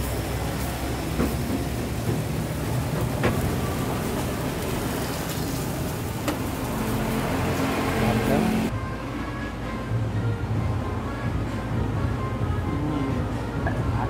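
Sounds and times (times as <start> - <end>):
charcoal crackles: 0.0 - 8.7
fish sizzling on a grill: 0.0 - 8.7.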